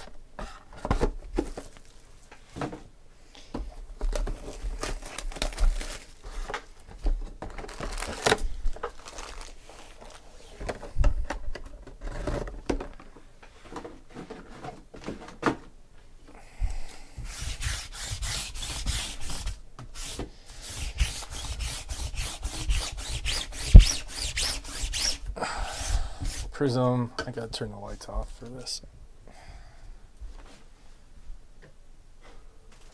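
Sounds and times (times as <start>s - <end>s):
cardboard and foil packs rustling: 0.8s - 2.6s, 4.0s - 15.6s, 32.7s - 32.9s.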